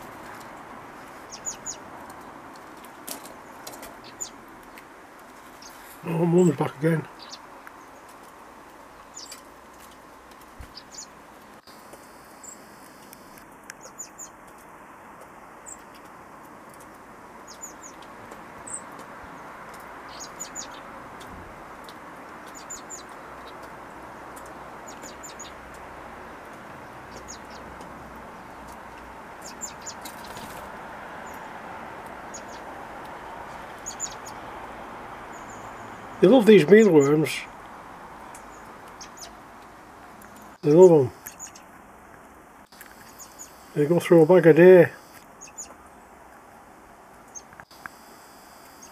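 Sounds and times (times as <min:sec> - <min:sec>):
birds chirping: 0:00.0 - 0:46.6, 0:47.2 - 0:48.9
steady background noise: 0:00.0 - 0:48.9.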